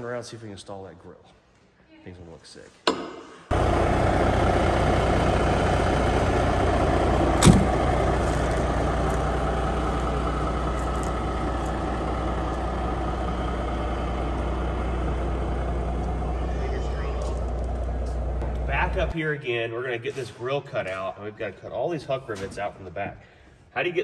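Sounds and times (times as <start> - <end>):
truck diesel engine idling: 3.5 - 19.1.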